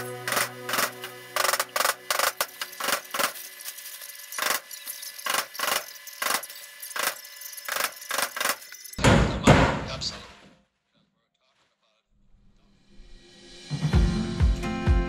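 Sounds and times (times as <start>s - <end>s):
hammer striking wood: 9.0s - 9.9s.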